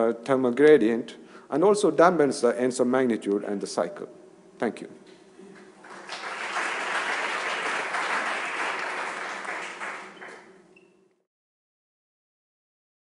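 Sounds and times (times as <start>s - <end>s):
audience applauding: 5.8s - 10.6s.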